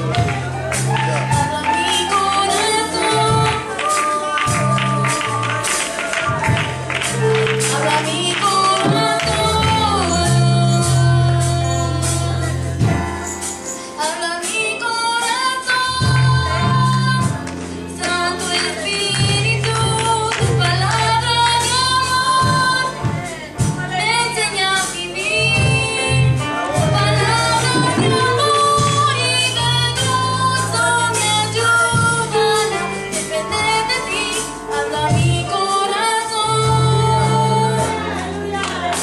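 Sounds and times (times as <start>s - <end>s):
choir singing worship song: 0.0s - 12.0s, 24.4s - 34.1s, 34.7s - 39.0s
held bass notes: 0.0s - 13.6s, 15.8s - 39.0s
instrumental accompaniment: 0.0s - 39.0s
percussion hits: 24.8s - 29.4s.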